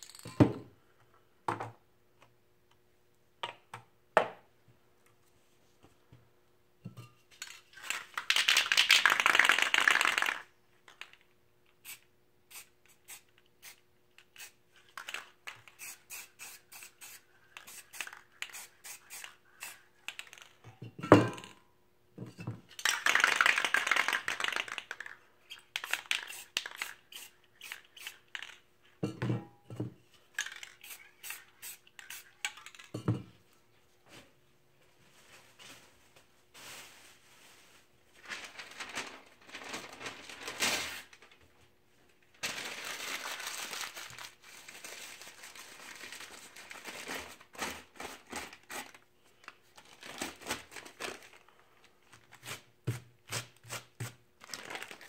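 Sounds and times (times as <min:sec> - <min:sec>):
spray paint can hissing: 0:15.8 - 0:19.8, 0:25.8 - 0:28.4, 0:30.6 - 0:32.3.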